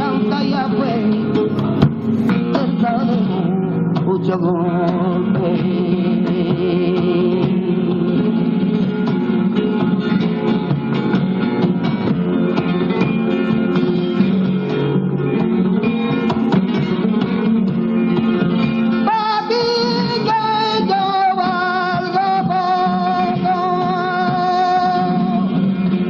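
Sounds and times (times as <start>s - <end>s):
man singing flamenco: 0.0s - 1.5s, 2.3s - 8.6s, 18.9s - 25.4s
flamenco guitar playing: 0.0s - 26.0s.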